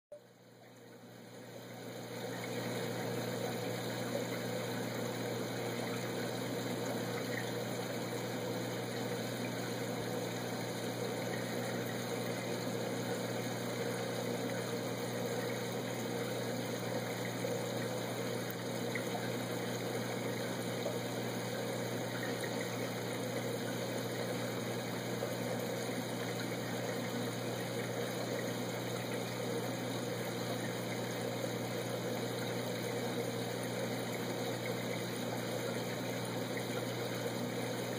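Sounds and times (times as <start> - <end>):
aquarium pump hum: 0.1 - 37.9.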